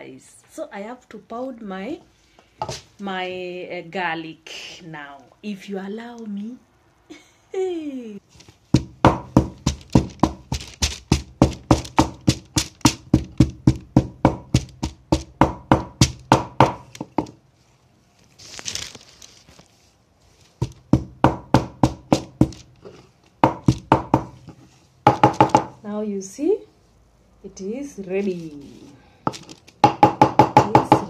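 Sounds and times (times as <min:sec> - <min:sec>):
pestle pounding in wooden mortar: 0:08.7 - 0:17.4, 0:20.6 - 0:22.7, 0:23.4 - 0:25.8, 0:29.3 - 0:31.0.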